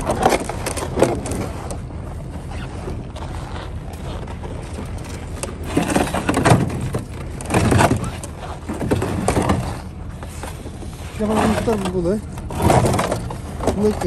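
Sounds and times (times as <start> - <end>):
ice blocks scraping on wood: 5.6 - 14.0.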